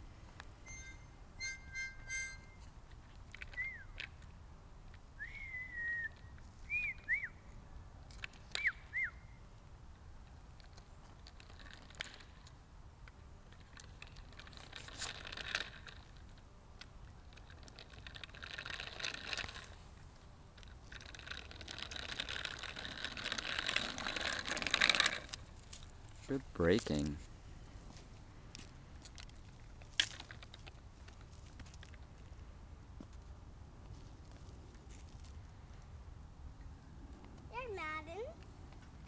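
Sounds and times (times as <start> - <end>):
high whistled chirps: 0.6 - 2.6, 3.5 - 4.0, 5.2 - 7.4, 8.5 - 9.4
bicycle tyres rolling on asphalt: 1.8 - 37.6.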